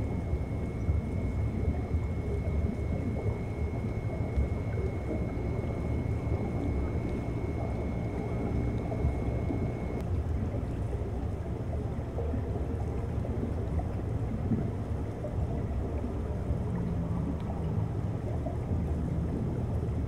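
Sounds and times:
thin high whine: 0:00.0 - 0:10.0
underwater rumble of seawater: 0:00.0 - 0:20.0.

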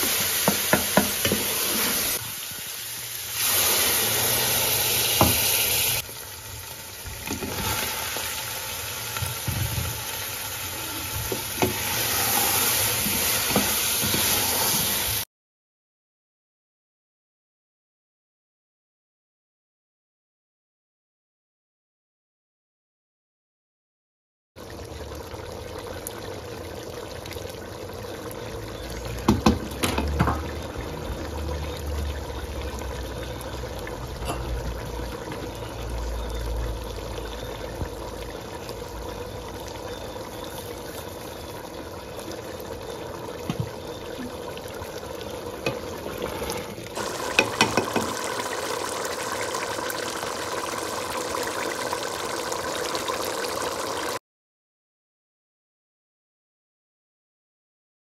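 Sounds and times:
curry bubbling in a pot: 0:06.0 - 0:15.2, 0:24.6 - 0:54.2
utensils tapping a pot: 0:47.2 - 0:48.2.

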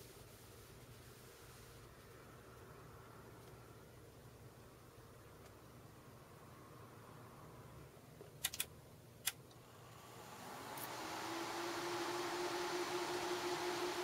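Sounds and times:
sharp clicks: 0:08.4 - 0:09.5
cooling fans whirring: 0:09.3 - 0:14.0.

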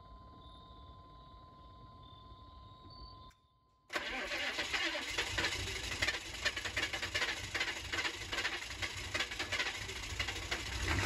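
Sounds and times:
diesel engine starting and clattering: 0:03.9 - 0:11.0.

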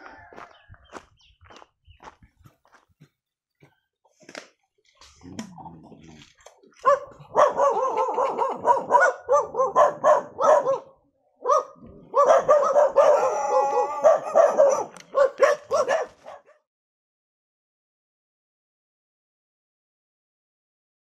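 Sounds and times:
dog barking: 0:06.8 - 0:16.7.

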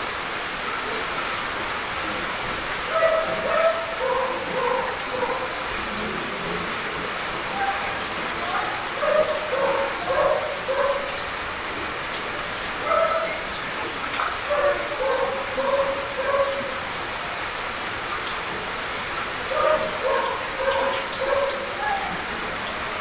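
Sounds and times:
gentle rain falling: 0:00.0 - 0:23.0
dog barking: 0:02.9 - 0:05.5, 0:07.6 - 0:11.2, 0:12.8 - 0:13.4, 0:14.5 - 0:16.8, 0:19.5 - 0:22.2.

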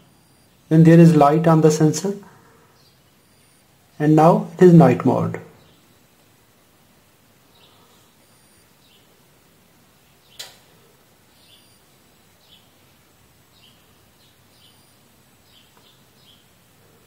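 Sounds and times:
bird chirping: 0:02.1 - 0:06.2, 0:07.4 - 0:09.2, 0:10.2 - 0:10.6, 0:11.3 - 0:12.8, 0:13.4 - 0:16.6
sharp click: 0:10.3 - 0:10.7.

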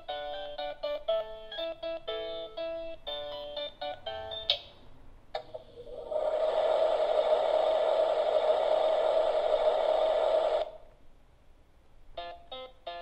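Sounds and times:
electronic sizzling hiss: 0:05.6 - 0:11.0.

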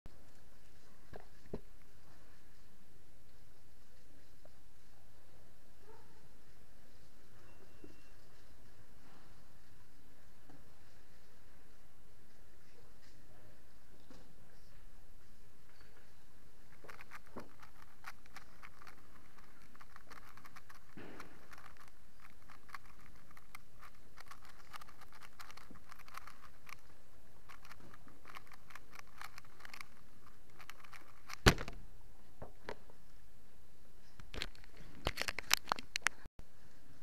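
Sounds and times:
puzzle cube plastic clicks: 0:16.8 - 0:31.8.

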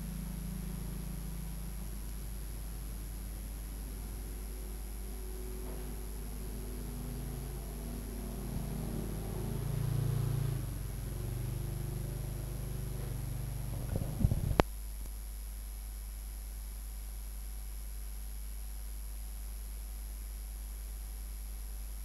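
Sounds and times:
vehicle engine going by: 0:00.0 - 0:14.6
steady low hum: 0:00.0 - 0:22.0.

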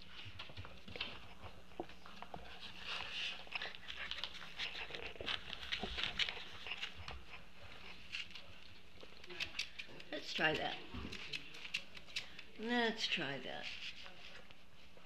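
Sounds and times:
puppies scratching in wood shavings: 0:01.2 - 0:09.8.

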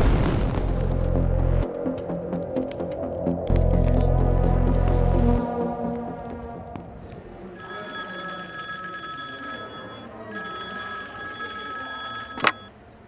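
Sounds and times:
telephone bell ringing: 0:07.6 - 0:12.7.

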